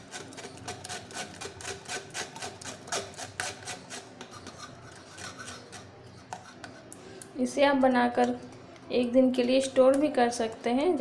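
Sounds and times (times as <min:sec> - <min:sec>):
spoon scraping mesh strainer: 0:00.0 - 0:06.9.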